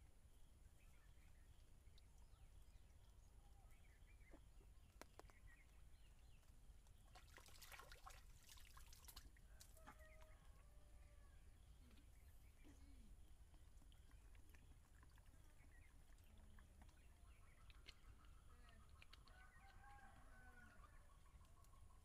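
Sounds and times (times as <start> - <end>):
small birds chirping: 0.6 - 9.1, 11.5 - 22.0
faint clicks and crackles: 4.9 - 7.0.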